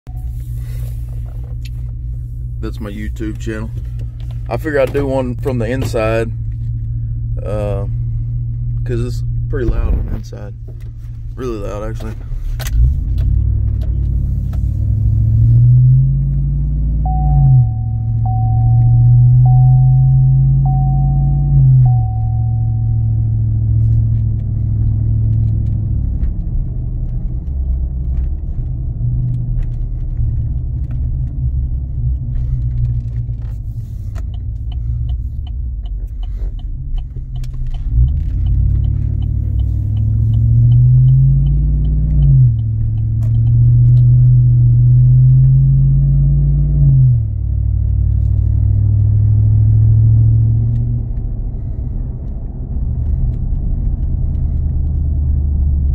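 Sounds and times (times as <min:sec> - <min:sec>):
truck exhaust drone: 0:00.1 - 0:55.9
faint steady ticking: 0:29.2 - 0:44.1.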